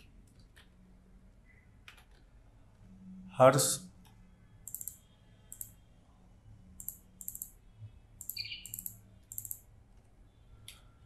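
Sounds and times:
computer keyboard typing: 4.7s - 5.7s, 6.8s - 7.6s, 8.2s - 9.6s.

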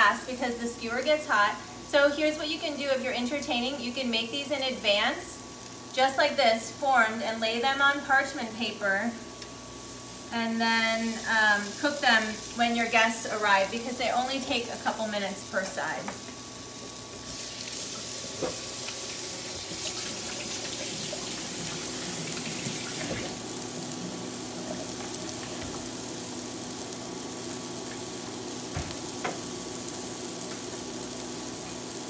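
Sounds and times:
meat sizzling on grill pan: 7.0s - 32.0s.

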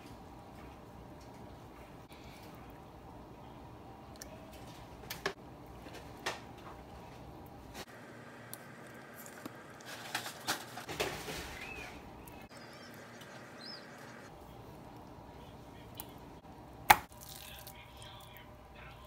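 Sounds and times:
wet crackles: 16.9s - 18.4s.

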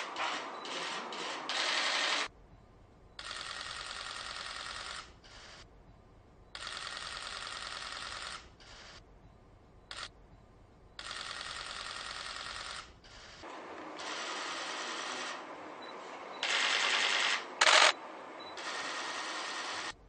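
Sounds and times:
camera shutter clicks: 9.9s - 10.1s, 16.4s - 18.0s.

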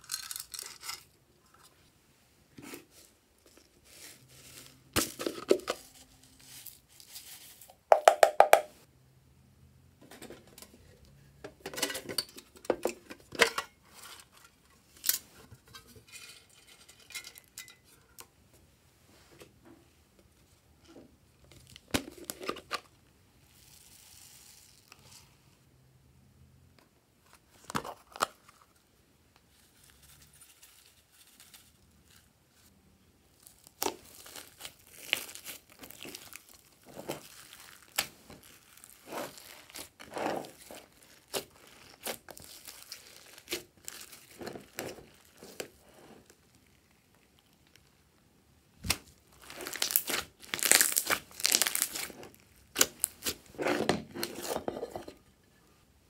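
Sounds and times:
slime squelching and popping: 48.8s - 53.4s.

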